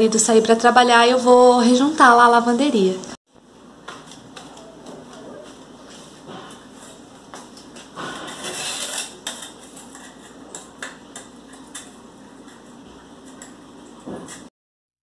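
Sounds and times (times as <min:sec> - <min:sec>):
metal tool scraping tile grout: 0:08.0 - 0:11.9.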